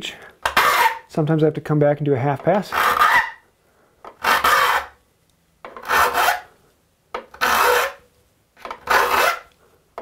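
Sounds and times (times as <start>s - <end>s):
file rasping on saw teeth: 0.5s - 1.1s, 2.7s - 3.4s, 4.2s - 5.0s, 5.8s - 6.5s, 7.3s - 8.0s, 8.8s - 9.5s.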